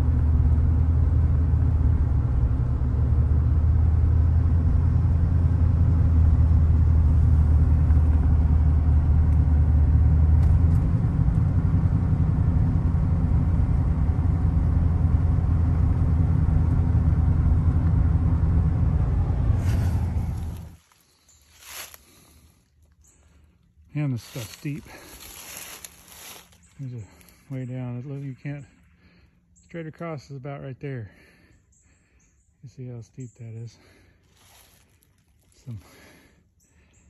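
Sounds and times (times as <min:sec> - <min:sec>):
vehicle engine and road noise: 0:00.0 - 0:37.0.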